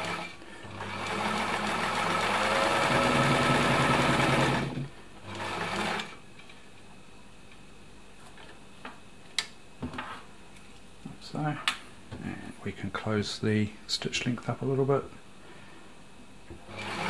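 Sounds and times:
sewing machine running: 0.0s - 6.2s, 16.7s - 17.0s.

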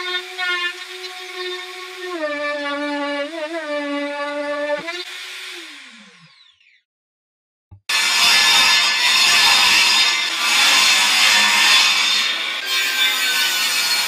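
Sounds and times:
plunge router whining: 0.0s - 6.8s
router winding down: 4.5s - 6.8s.

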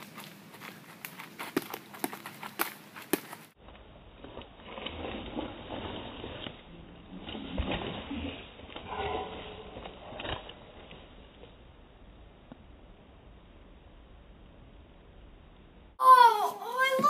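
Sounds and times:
footsteps and scuffling on dirt: 0.0s - 8.9s.

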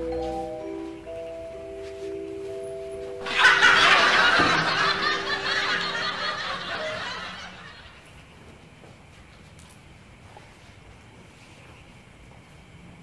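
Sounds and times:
soft music cue: 0.0s - 7.5s
canned crowd laughter: 3.2s - 8.0s.

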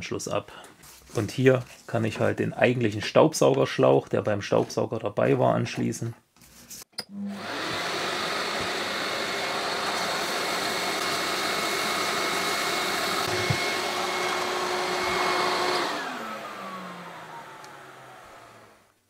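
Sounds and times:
vacuum motor whine winding down: 7.1s - 18.9s
workshop vacuum cleaner running: 7.2s - 18.9s.

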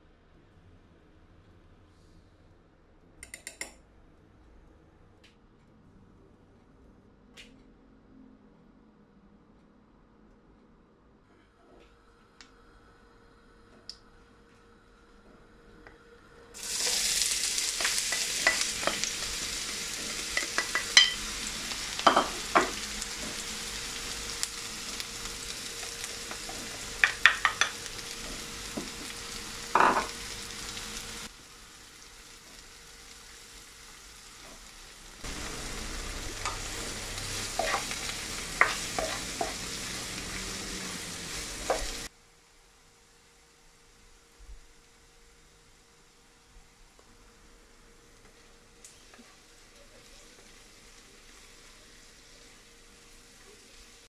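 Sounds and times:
onions sizzling in hot oil: 16.6s - 42.1s, 43.2s - 54.0s
spatula scraping wok: 35.2s - 42.1s.

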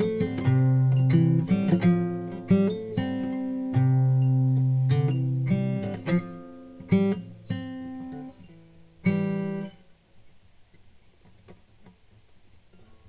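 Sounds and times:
plucked guitar notes and chords: 0.0s - 9.8s.

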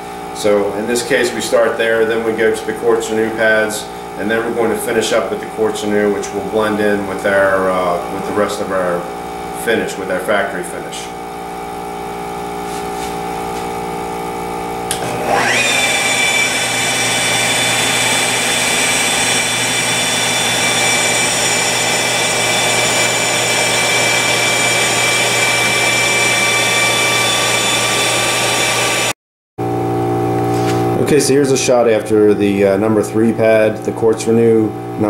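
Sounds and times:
steady motor hum: 0.0s - 35.0s
polisher whining: 14.9s - 29.2s.

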